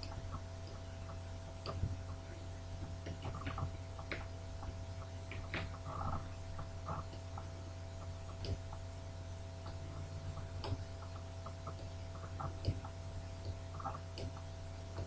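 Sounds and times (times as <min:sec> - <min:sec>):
low electrical hum: 0:00.0 - 0:15.0
light clicks on screen: 0:08.3 - 0:08.7, 0:10.5 - 0:15.0.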